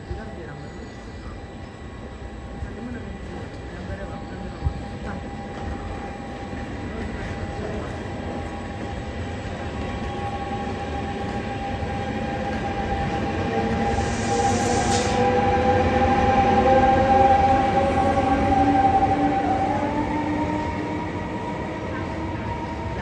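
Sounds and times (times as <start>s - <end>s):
electric train passing: 0.0s - 23.0s
brief hiss: 14.0s - 15.2s.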